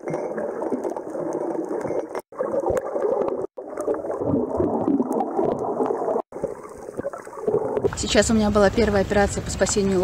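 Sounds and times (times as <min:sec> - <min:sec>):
muffled underwater water rush: 0:00.0 - 0:10.0.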